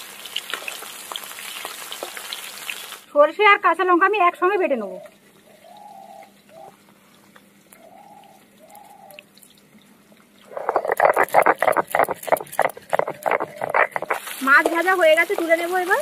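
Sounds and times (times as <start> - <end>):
stone grinding on a slab: 10.5 - 14.9
seeds ticking onto stone: 10.6 - 16.0.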